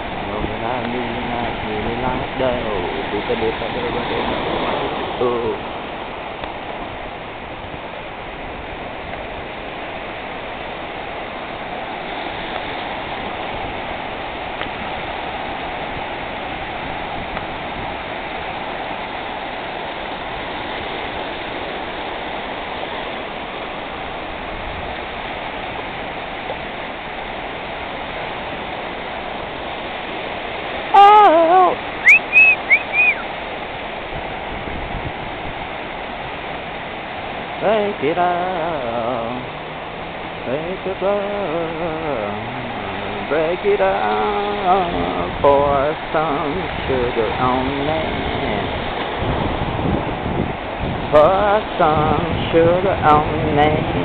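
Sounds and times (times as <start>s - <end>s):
ocean surf breaking on beach: 0.0s - 54.0s
short high-pitched wavering sounds: 31.0s - 33.3s.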